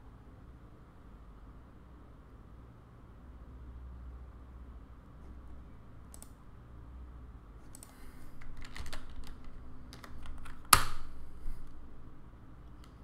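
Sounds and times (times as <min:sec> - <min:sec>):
typing on computer keyboard: 0:07.7 - 0:11.0.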